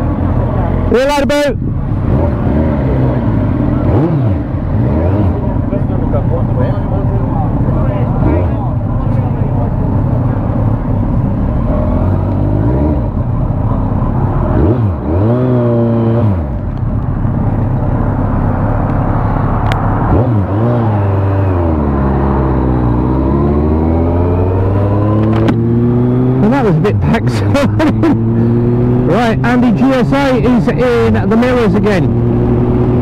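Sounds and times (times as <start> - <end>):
motorcycle engine accelerating: 0.0 - 33.0.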